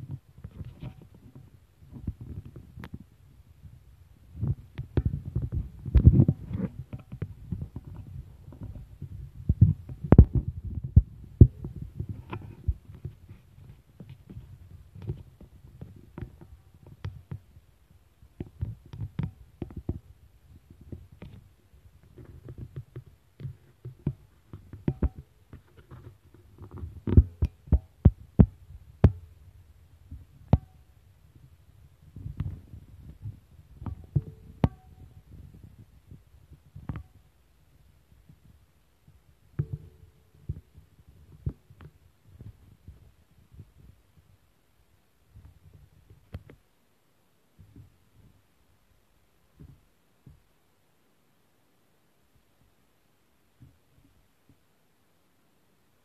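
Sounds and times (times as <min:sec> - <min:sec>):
sharp knocks and clicks: 0:22.0 - 0:29.3.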